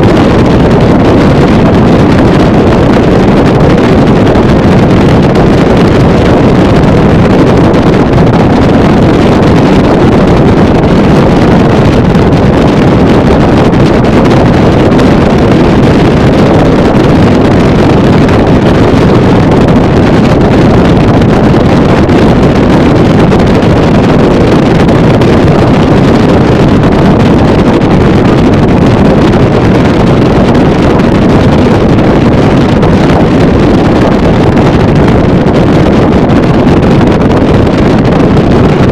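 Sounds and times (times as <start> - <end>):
motorboat engine and water rush: 0.0 - 38.9
wind buffeting microphone: 0.0 - 38.9.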